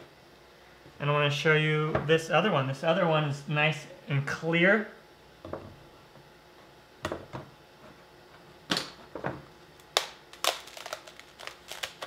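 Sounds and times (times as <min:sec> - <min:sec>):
sugar glass cracking: 0:09.9 - 0:12.0.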